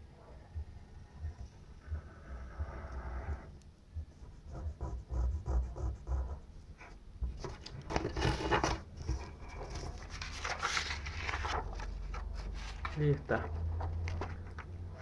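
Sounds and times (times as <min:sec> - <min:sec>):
pencil scratching on paper: 0:04.1 - 0:07.0.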